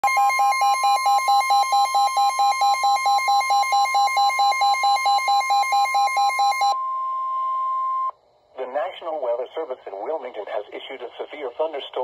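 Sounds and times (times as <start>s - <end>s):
steady high alarm tone: 0.0s - 8.1s.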